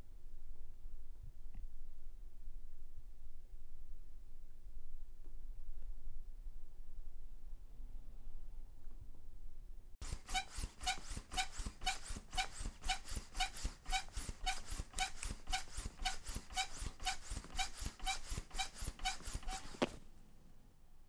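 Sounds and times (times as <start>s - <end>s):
pogo stick thudding on pavement: 10.0s - 20.1s.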